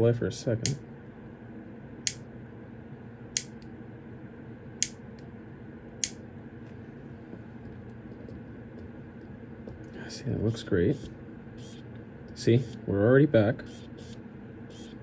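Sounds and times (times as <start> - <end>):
faint steady hum: 0.0 - 15.0
piezo igniter clicking: 3.4 - 3.7, 4.8 - 5.0, 6.0 - 6.2.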